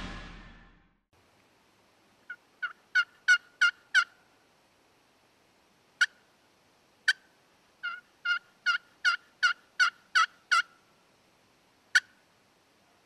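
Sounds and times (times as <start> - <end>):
turkey call clucks and yelps: 2.3 - 4.2, 7.8 - 10.8.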